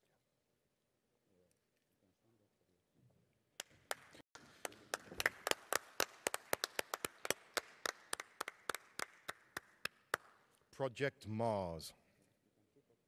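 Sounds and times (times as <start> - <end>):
audience clapping: 3.6 - 10.5.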